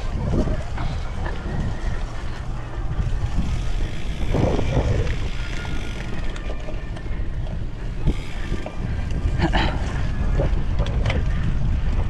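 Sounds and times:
bike rumbling and rattling: 0:00.0 - 0:12.0
wind buffeting microphone: 0:00.0 - 0:12.0.

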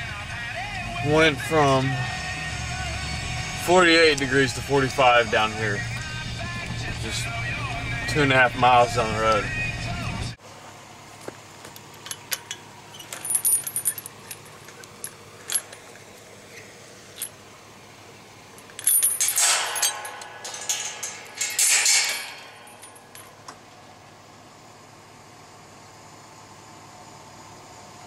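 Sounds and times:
metal chain clinking and rattling: 0:11.7 - 0:17.4, 0:18.6 - 0:23.5.

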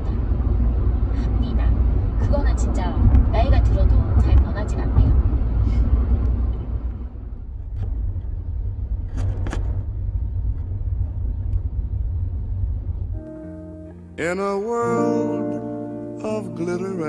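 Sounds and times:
road rumble inside car: 0:00.0 - 0:13.5.

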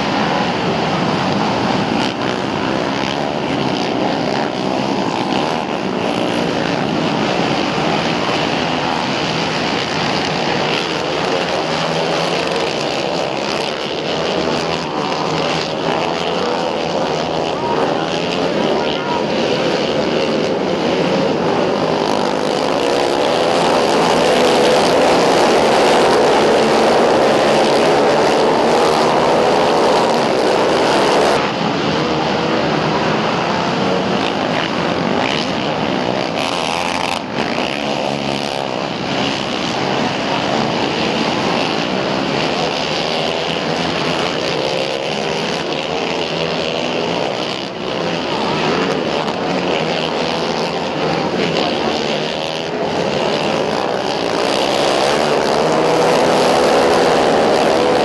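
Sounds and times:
quad engines revving: 0:00.0 - 0:58.0.

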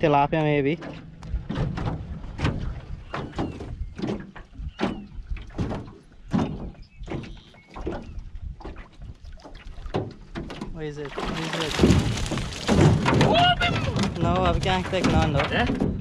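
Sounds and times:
knocks against boat side: 0:00.8 - 0:08.1
net splashing and dripping: 0:11.1 - 0:13.3.

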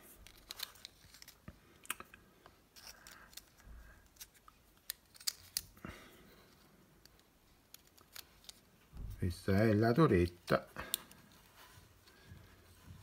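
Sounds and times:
rustling: 0:00.0 - 0:01.8.

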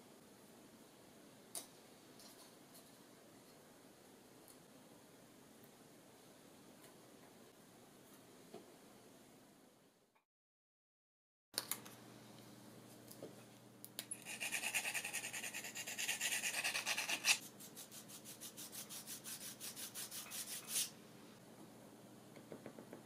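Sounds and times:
sanding wooden parts: 0:14.2 - 0:20.9.

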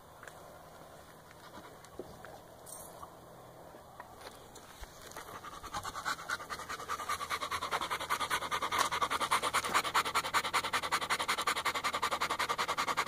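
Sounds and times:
dog panting: 0:05.1 - 0:13.0.

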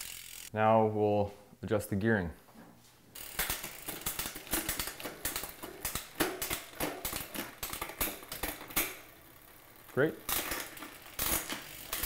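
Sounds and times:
bicycle chain clicking and rattling: 0:00.0 - 0:00.5, 0:03.2 - 0:12.0.

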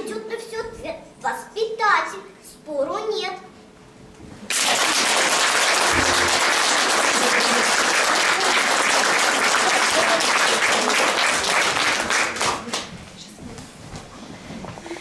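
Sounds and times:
audience applauding: 0:04.5 - 0:12.8.

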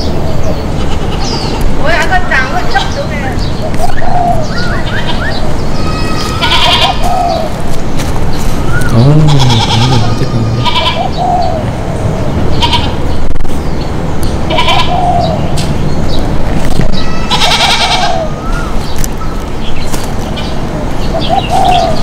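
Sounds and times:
steady background hiss: 0:00.0 - 0:22.0
goats bleating: 0:05.0 - 0:07.1, 0:08.9 - 0:11.0, 0:14.5 - 0:14.9, 0:17.0 - 0:18.2.

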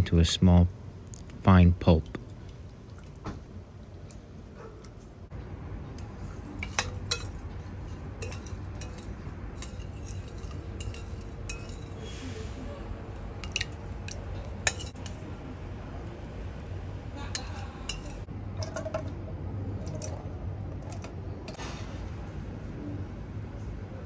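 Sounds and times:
spoon stirring sauce: 0:06.0 - 0:12.0, 0:13.0 - 0:18.8
spoon clinking against bowl: 0:06.6 - 0:12.0, 0:13.4 - 0:15.2, 0:17.3 - 0:19.0.

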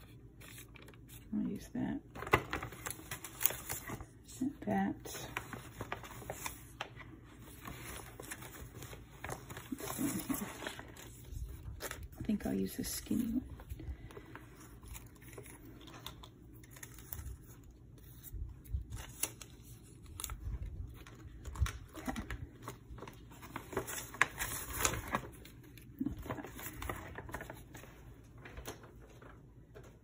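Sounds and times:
paper and plastic rustling: 0:00.0 - 0:30.0.

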